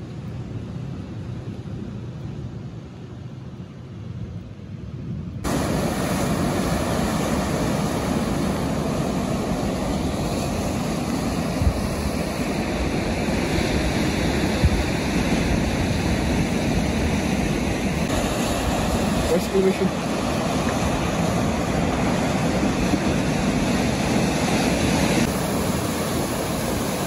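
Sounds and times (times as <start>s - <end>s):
wind on microphone: 3.6s - 27.0s
surf washing over boulders: 5.4s - 27.0s.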